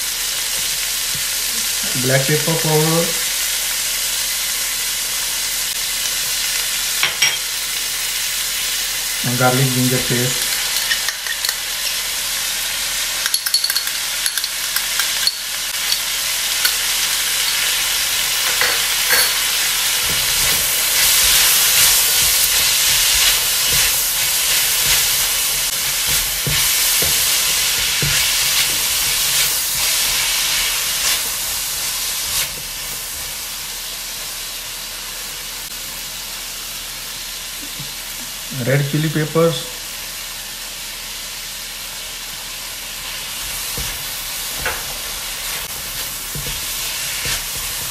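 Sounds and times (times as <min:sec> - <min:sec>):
vegetables sizzling in wok: 0:00.0 - 0:47.9
spatula scraping and tapping pan: 0:43.4 - 0:47.9.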